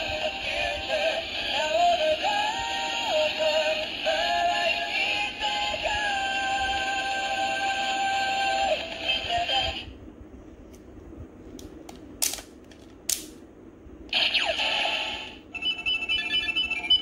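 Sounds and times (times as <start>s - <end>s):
electronic toy sound effects: 14.1s - 17.0s
electronic toy song: 15.5s - 17.0s
quick electronic beeps: 15.6s - 17.0s.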